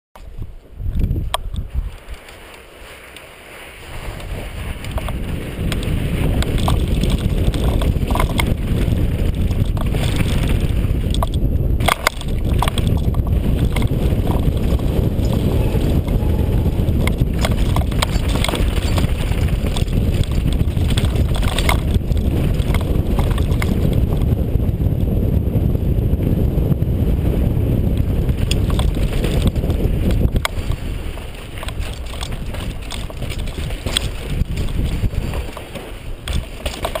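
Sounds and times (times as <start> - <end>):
tyres rumbling on loose dirt: 0.2 - 37.0
wind buffeting microphone: 0.2 - 37.0
bike clattering over bumps: 4.1 - 37.0.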